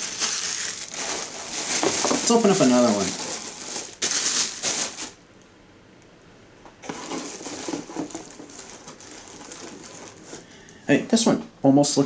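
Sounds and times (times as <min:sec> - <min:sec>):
bubble wrap crinkling and rustling: 0:00.0 - 0:05.2, 0:06.8 - 0:10.5.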